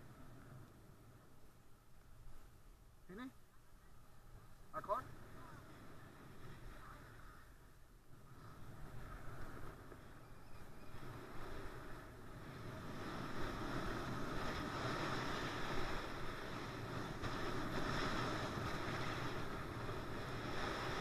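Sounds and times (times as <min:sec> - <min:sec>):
wind rushing over microphone: 0:04.2 - 0:21.0
skis sliding on snow: 0:04.8 - 0:21.0.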